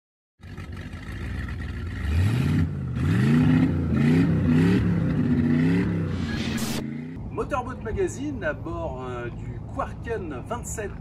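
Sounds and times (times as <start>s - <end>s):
engine revving: 1.9s - 7.2s.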